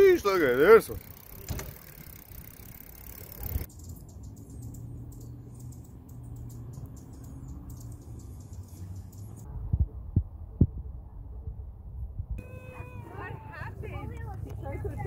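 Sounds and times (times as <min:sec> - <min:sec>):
outdoor noise: 0:00.0 - 0:15.0
hummingbird wing hum: 0:01.3 - 0:09.4.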